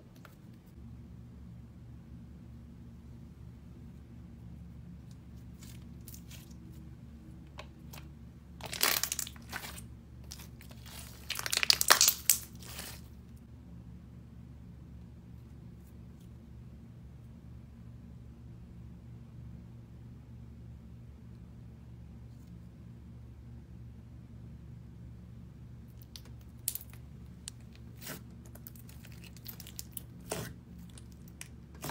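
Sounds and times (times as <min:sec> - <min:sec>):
steady low hum: 0:00.0 - 0:11.4, 0:12.4 - 0:31.9
slime crackling and popping: 0:08.6 - 0:13.0, 0:25.9 - 0:31.9.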